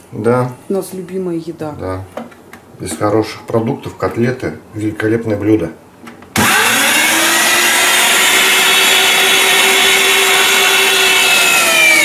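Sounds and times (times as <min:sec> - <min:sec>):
electric meat grinder running: 0:06.4 - 0:12.0.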